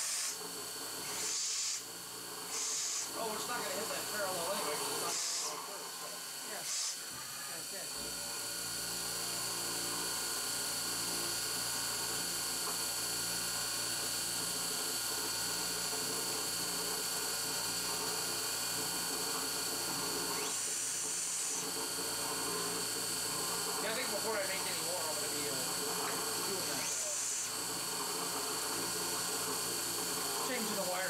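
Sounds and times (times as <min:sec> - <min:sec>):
air blast hissing: 0:00.0 - 0:00.4, 0:01.0 - 0:01.8, 0:02.5 - 0:03.2
milling machine cutting whine: 0:00.0 - 0:31.0.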